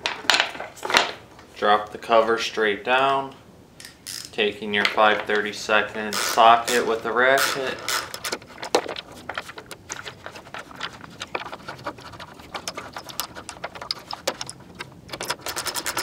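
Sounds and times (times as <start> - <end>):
socket ratchet clicking: 3.8 - 4.3, 6.2 - 6.8, 7.4 - 8.4, 14.2 - 16.0.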